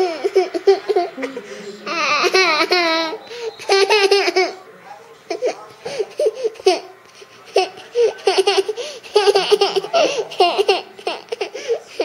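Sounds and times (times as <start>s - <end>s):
toddler giggling: 0.0s - 4.6s, 7.5s - 12.0s.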